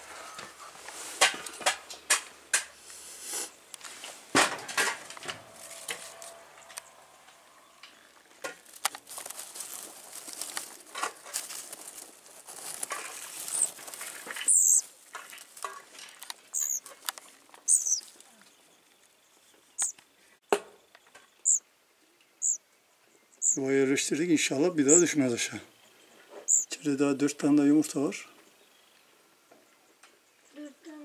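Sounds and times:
dry grass nest rustling: 0.5s - 6.9s, 8.0s - 19.0s
high-pitched bird chirps: 14.5s - 14.8s, 16.5s - 16.8s, 17.6s - 18.1s, 19.8s - 20.0s, 21.4s - 21.6s, 22.4s - 22.6s, 23.4s - 23.6s, 26.5s - 26.8s.

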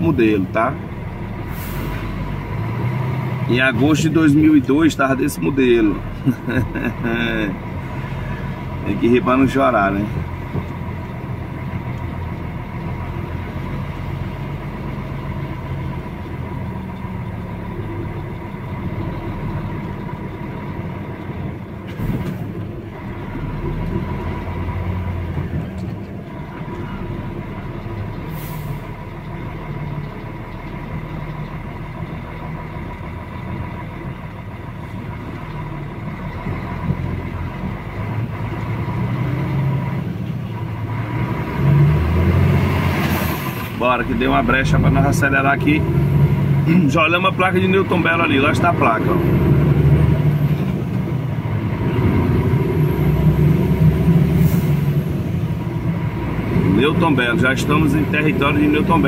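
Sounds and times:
truck engine running: 0.0s - 59.0s
tyres on asphalt: 0.0s - 59.0s
short hisses: 1.5s - 2.1s, 28.3s - 28.9s.

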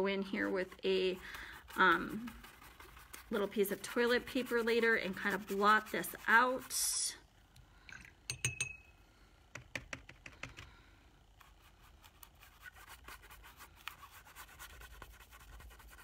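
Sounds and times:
paintbrush scratching on paper: 0.0s - 7.1s, 11.4s - 16.0s.

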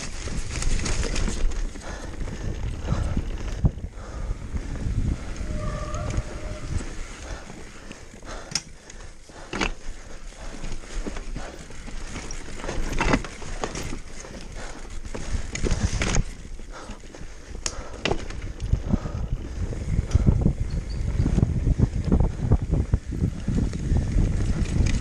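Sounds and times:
wind rumble on microphone: 0.0s - 8.5s, 14.6s - 25.0s
bike rattling and knocking: 0.0s - 25.0s
bike tyres rumbling over rocks: 0.0s - 25.0s.

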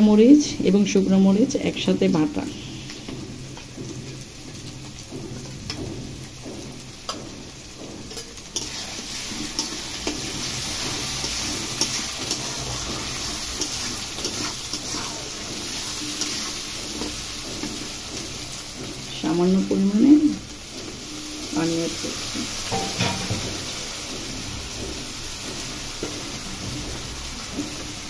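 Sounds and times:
potatoes sizzling in oil: 0.0s - 28.0s
metal spatula scraping a pan: 2.1s - 19.2s, 20.6s - 24.7s.

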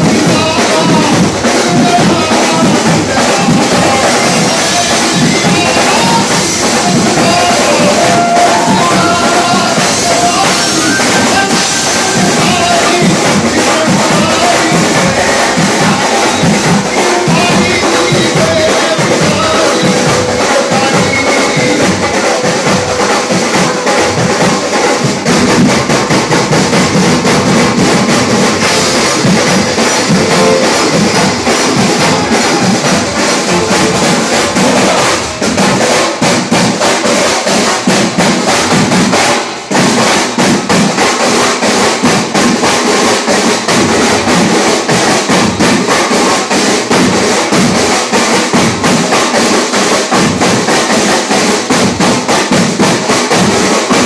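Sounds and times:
drum kit and percussion: 0.0s - 54.0s
keyboards: 28.3s - 34.6s.

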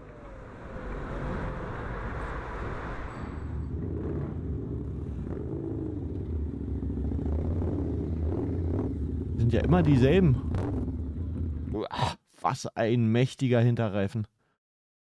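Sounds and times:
motorcycle passing: 0.0s - 11.8s
motorcycles rumbling pulling away: 0.0s - 11.9s.

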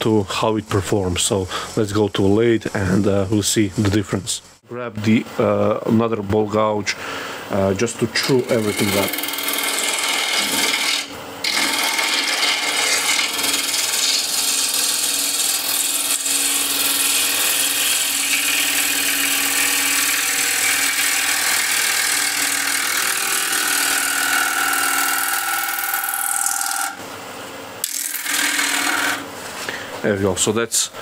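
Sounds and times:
gouge cutting wood on a lathe: 8.2s - 27.0s, 27.8s - 29.3s.

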